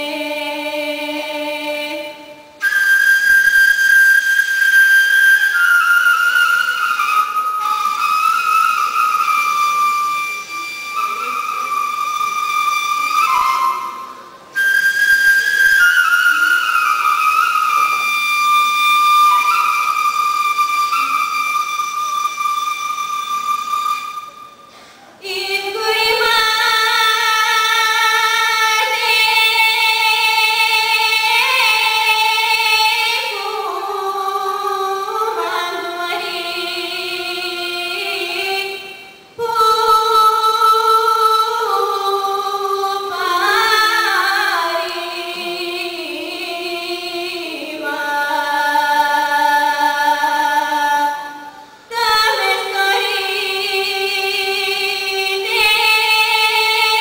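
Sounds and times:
woman singing folk song: 0:51.9 - 0:57.0.

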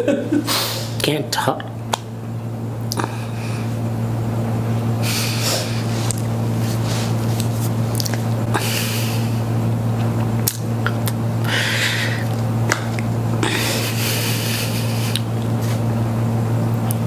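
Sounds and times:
steady low hum: 0:00.0 - 0:17.0
person sniffing: 0:00.5 - 0:01.0
person breathing out heavily: 0:05.0 - 0:06.0, 0:08.5 - 0:09.5, 0:11.4 - 0:12.3, 0:13.4 - 0:15.2.

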